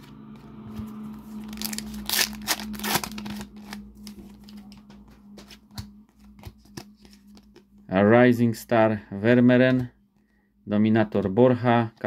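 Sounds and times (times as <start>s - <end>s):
foil packet crinkling and tearing: 1.4s - 4.6s
cards being handled: 1.4s - 7.8s.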